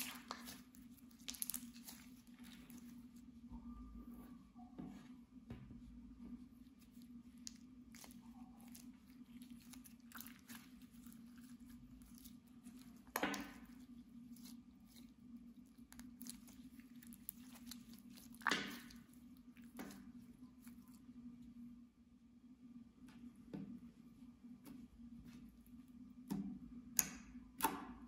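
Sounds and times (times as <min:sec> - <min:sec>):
slime sticky clicks and crackles: 0:00.0 - 0:02.9
low hum: 0:00.0 - 0:28.0.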